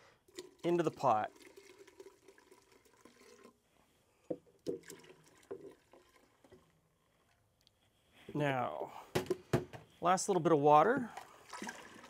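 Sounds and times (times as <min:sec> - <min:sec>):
water trickling into a metal pot: 0:00.1 - 0:03.6, 0:04.5 - 0:07.3, 0:11.0 - 0:12.0
water splashing and dripping: 0:10.9 - 0:12.0.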